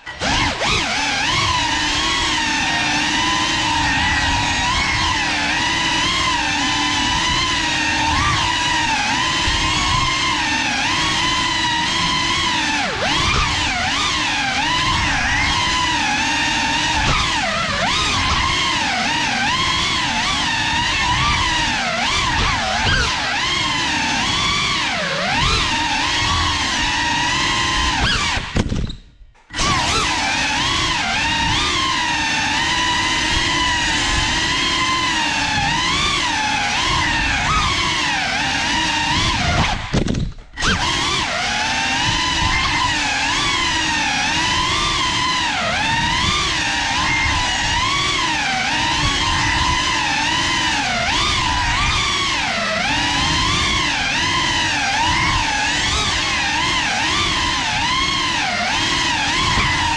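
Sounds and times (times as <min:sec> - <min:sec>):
drone motors whining: 0:00.0 - 0:59.9.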